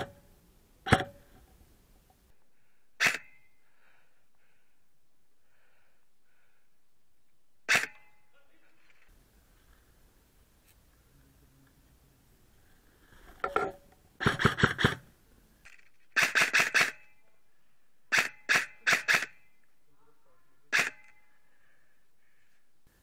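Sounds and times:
airsoft gun shots: 0:14.2 - 0:15.0, 0:16.2 - 0:17.1, 0:18.1 - 0:19.4, 0:20.7 - 0:21.1.

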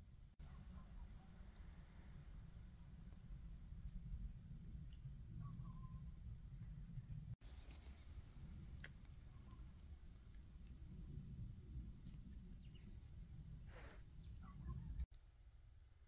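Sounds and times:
faint high bird chirps: 0:05.4 - 0:06.1.

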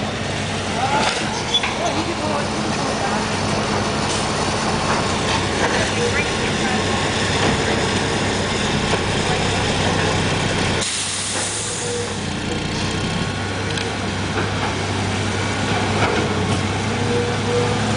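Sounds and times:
diesel machinery running: 0:00.0 - 0:17.9
loud hiss: 0:10.8 - 0:12.2.

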